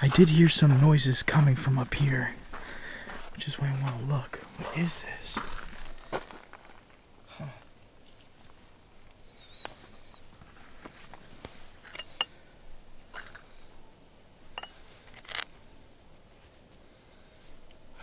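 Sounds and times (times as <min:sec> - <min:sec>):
metal caps clinking on concrete: 0:11.8 - 0:12.4, 0:13.1 - 0:13.5, 0:14.6 - 0:15.5.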